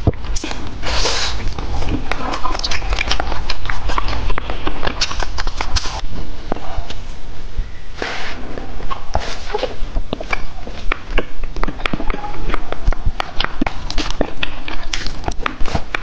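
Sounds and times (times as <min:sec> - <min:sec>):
wet chewing mouth clicks: 0:00.0 - 0:07.0, 0:08.5 - 0:16.0
breathy hiss: 0:07.9 - 0:08.5.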